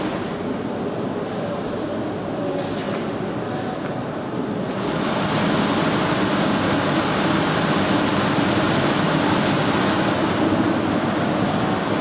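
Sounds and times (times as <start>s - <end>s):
ventilation air rushing: 4.4s - 12.0s.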